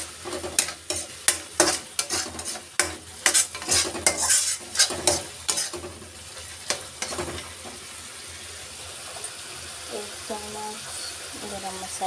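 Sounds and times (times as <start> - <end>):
metal spatula scraping a pan: 0.2 - 7.8.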